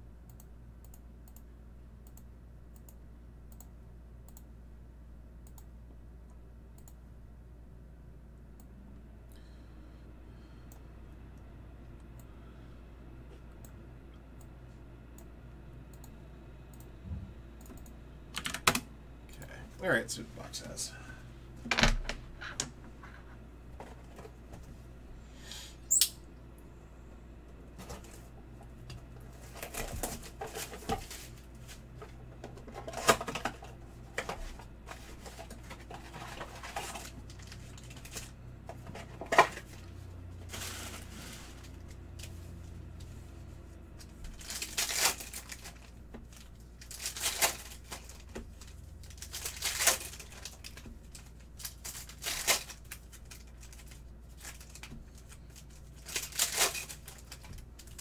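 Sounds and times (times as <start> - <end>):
sharp click: 25.9 - 26.2
foil packs crinkling and tearing: 35.0 - 38.4, 39.2 - 41.9, 44.3 - 58.0.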